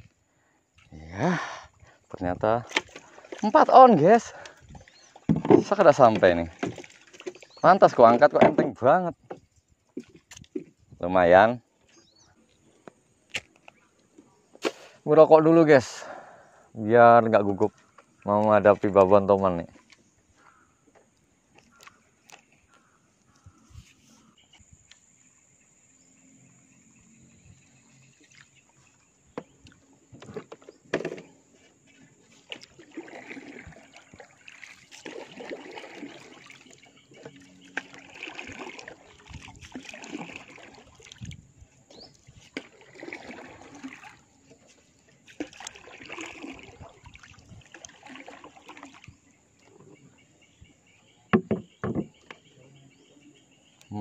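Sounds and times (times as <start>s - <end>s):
paddle swishing in water: 2.6s - 10.9s, 17.4s - 24.7s, 27.7s - 52.5s
sharp knocks: 51.3s - 52.1s.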